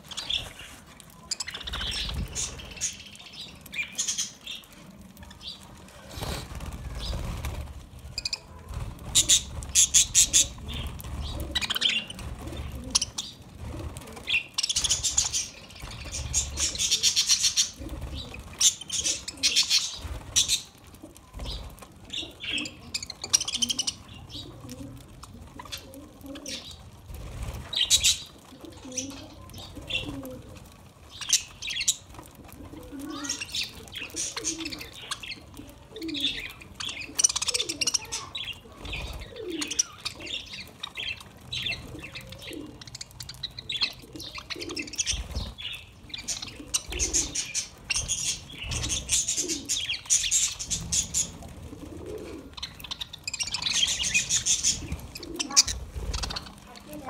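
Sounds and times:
budgerigars chirping and chattering: 0.0s - 4.7s, 8.1s - 13.4s, 14.2s - 20.8s, 21.4s - 24.7s, 27.7s - 30.2s, 31.1s - 32.1s, 33.0s - 51.4s, 52.5s - 57.0s
wings flapping: 0.0s - 57.0s
low cooing calls: 21.0s - 26.8s, 32.6s - 57.0s.

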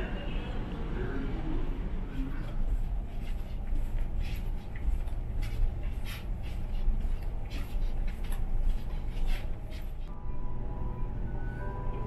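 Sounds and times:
footsteps on carpet: 2.4s - 10.1s.

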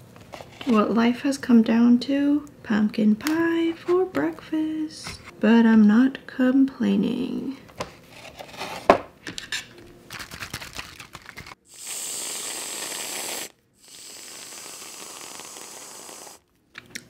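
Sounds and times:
aerosol cream can spraying: 11.7s - 16.4s.

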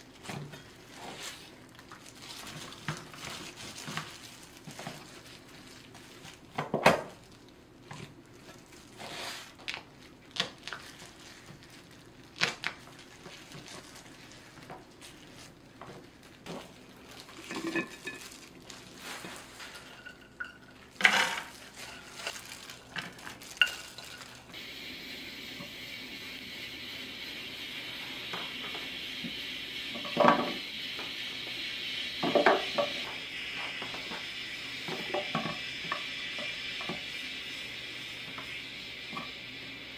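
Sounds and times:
steady hiss: 20.8s - 39.9s.

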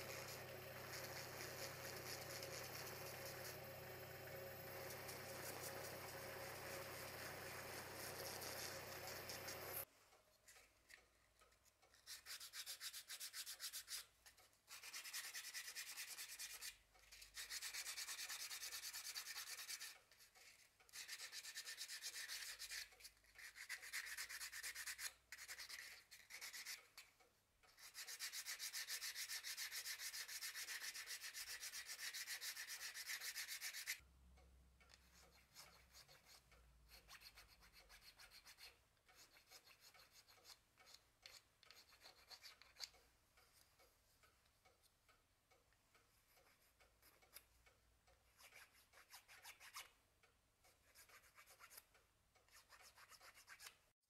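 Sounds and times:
sandpaper rubbing on wood: 0.0s - 3.5s, 27.8s - 34.0s
faint scratches and ticks: 0.0s - 34.0s, 34.8s - 53.8s.

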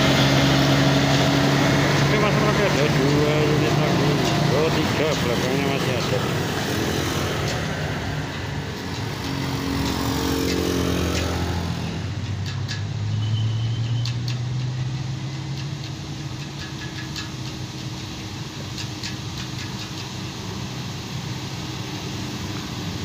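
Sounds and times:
motorcycle engine passing: 0.0s - 13.7s
bus diesel engine drone: 0.0s - 23.0s.

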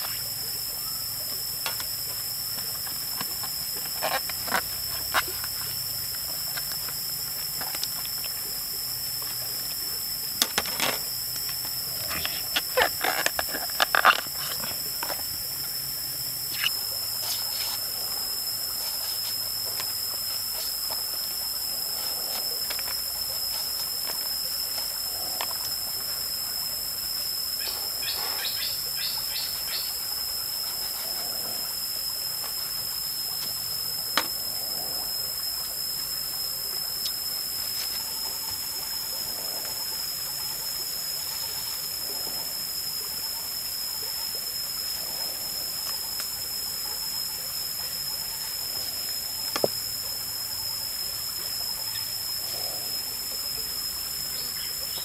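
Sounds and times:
high-pitched insect drone: 0.0s - 55.0s.

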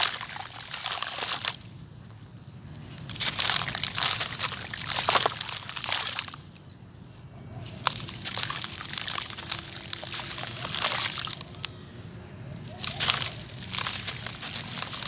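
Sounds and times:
charcoal powder pattering into water: 0.0s - 1.7s, 3.0s - 6.4s, 7.7s - 11.7s, 12.7s - 15.0s.

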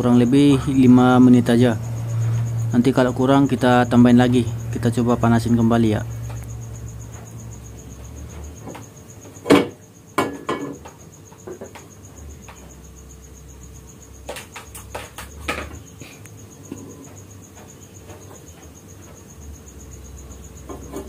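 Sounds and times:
sharp knocks: 14.2s - 15.9s.

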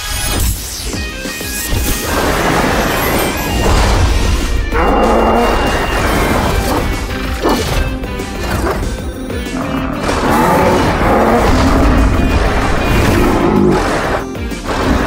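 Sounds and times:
background music: 0.0s - 15.0s
cartoon crash and impact effects: 2.0s - 6.9s.

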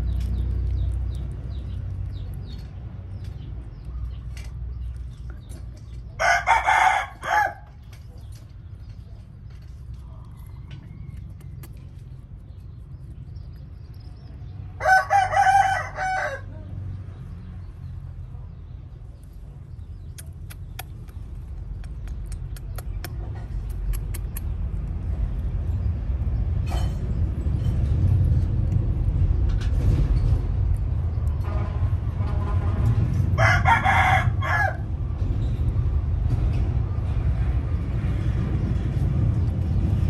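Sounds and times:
rooster crowing: 6.2s - 7.8s, 14.8s - 16.6s, 33.4s - 34.9s
low rumble: 16.6s - 40.0s.

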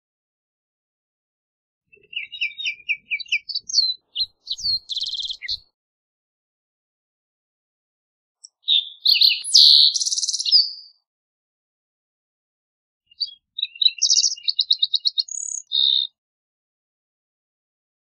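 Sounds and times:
bird singing sliding notes and trills: 2.0s - 5.6s.

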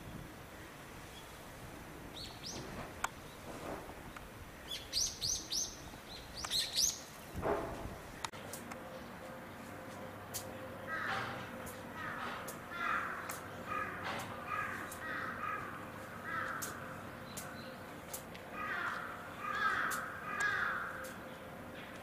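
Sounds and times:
crows cawing: 10.8s - 17.0s, 18.5s - 21.2s.

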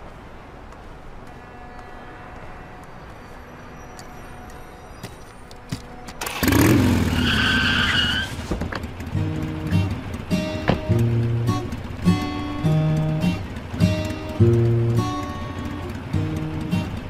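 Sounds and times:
tyre squeal: 3.0s - 8.8s
car engine revving: 6.2s - 17.0s
music: 9.1s - 17.0s.

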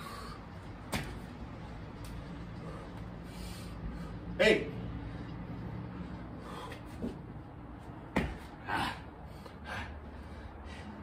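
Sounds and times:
hard breath out: 6.1s - 7.2s
thump on concrete floor: 8.1s - 8.4s.

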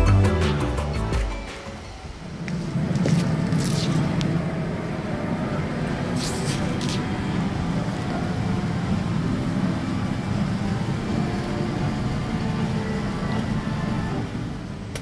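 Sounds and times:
cabin ventilation hum: 1.8s - 15.0s
short hissing rustles: 6.1s - 7.1s.

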